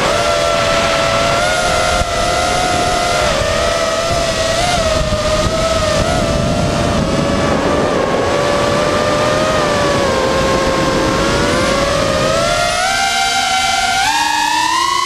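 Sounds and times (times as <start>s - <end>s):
wind rushing: 0.0s - 12.7s
drone motors whining: 0.0s - 15.0s.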